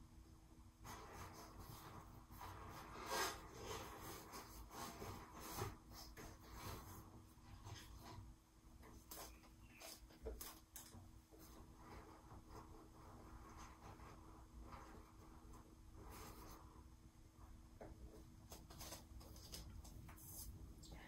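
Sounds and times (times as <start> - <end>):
hand rubbing inside latex balloon: 0.8 - 8.4, 11.4 - 16.9.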